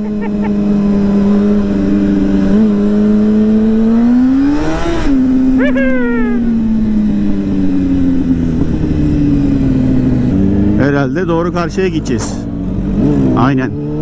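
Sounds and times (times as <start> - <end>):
motorcycle engine revving: 0.0 - 14.0
high-pitched falling sound: 5.6 - 6.7.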